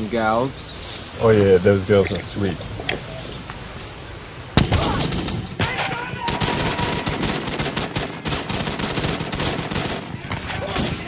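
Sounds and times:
small-arms gunfire volleys: 0:04.6 - 0:11.0.

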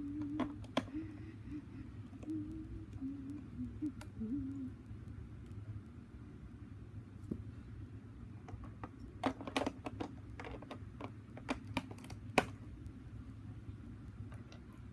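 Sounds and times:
steady low hum: 0:00.0 - 0:14.9
plastic bricks clicking: 0:08.5 - 0:12.6.

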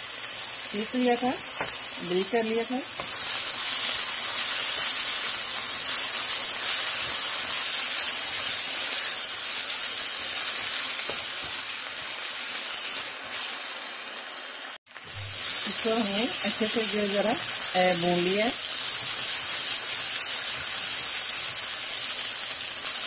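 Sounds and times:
onions sizzling in hot oil: 0:00.0 - 0:23.0.

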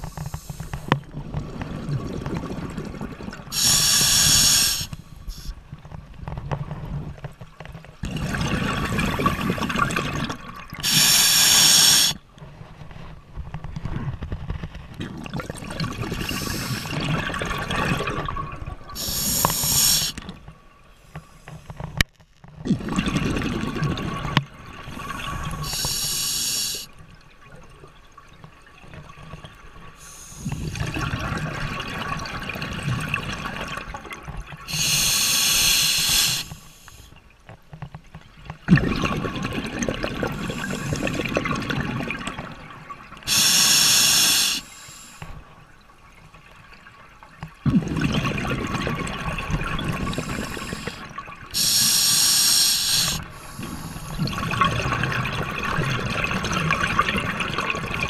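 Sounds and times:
regulator air hiss: 0:03.6 - 0:05.5, 0:10.8 - 0:12.2, 0:19.0 - 0:20.2, 0:25.6 - 0:26.9, 0:34.7 - 0:37.1, 0:43.3 - 0:45.2, 0:50.1 - 0:51.0, 0:51.6 - 0:54.2
bubbles bursting underwater: 0:08.0 - 0:10.8, 0:15.0 - 0:19.2, 0:22.7 - 0:25.6, 0:38.7 - 0:42.7, 0:47.6 - 0:51.7, 0:53.1 - 0:58.0.

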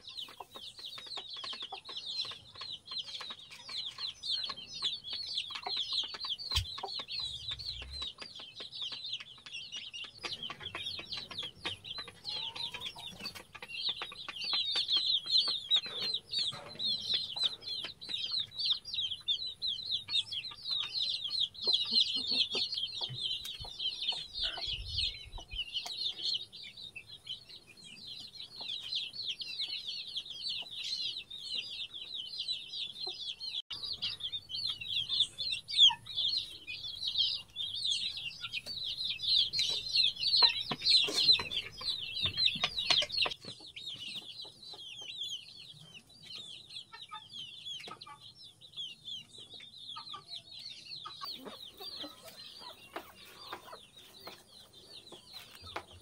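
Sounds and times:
chicks peeping: 0:00.0 - 0:56.0.

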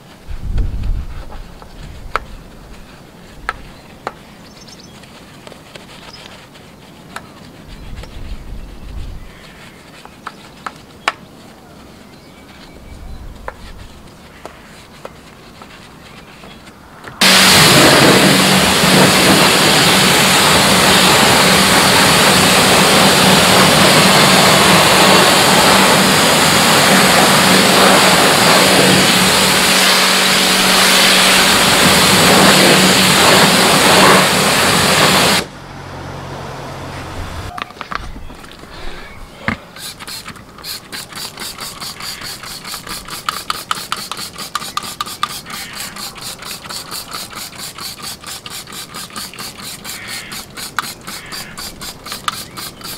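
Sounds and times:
motor-driven machine running: 0:17.2 - 0:35.5.

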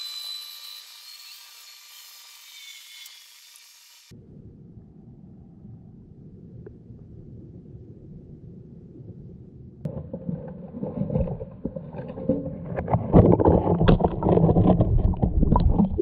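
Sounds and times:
water sloshing against camera: 0:09.9 - 0:16.0.

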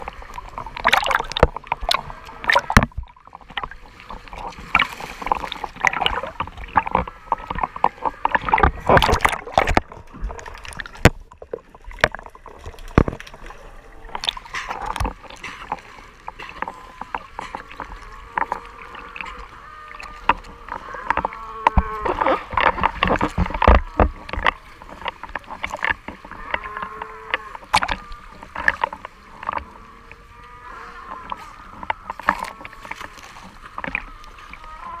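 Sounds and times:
water sloshing around camera housing: 0:00.0 - 0:30.2, 0:31.1 - 0:34.7
knocks and splashes against housing: 0:04.4 - 0:10.0
sea lions moaning and barking: 0:16.4 - 0:25.6, 0:26.2 - 0:35.0.

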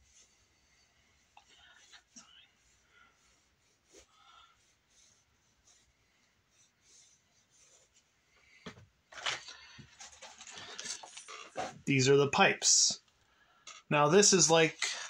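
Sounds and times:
pencil strokes on paper: 0:00.0 - 0:08.4.

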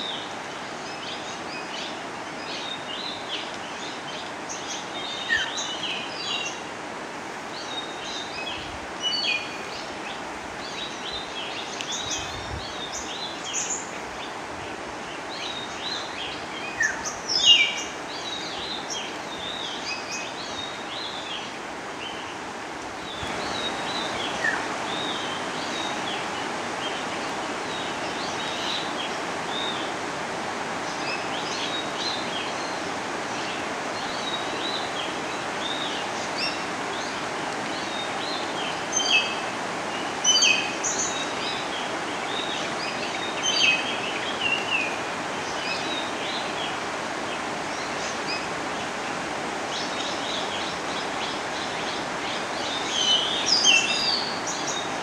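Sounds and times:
rushing outdoor background noise: 0:00.0 - 0:55.0
small birds chirping: 0:30.8 - 0:55.0.

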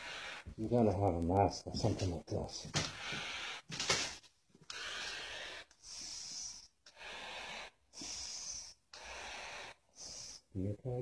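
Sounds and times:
person breathing through face mask: 0:00.0 - 0:00.6, 0:02.8 - 0:10.5.

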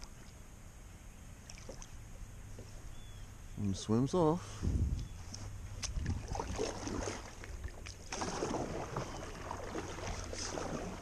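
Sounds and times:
paddle splashing in water: 0:05.8 - 0:11.0.

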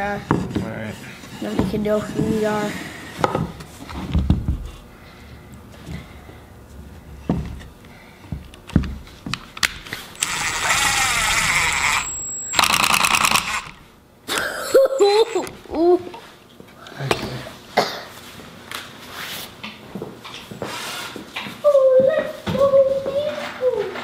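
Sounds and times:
rapid hammering clicks: 0:10.2 - 0:13.8
impact driver motor whine: 0:10.2 - 0:13.9.

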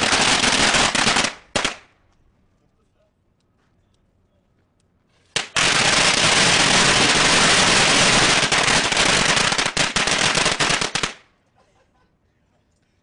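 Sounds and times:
firecrackers banging: 0:00.0 - 0:01.9, 0:05.4 - 0:11.2.

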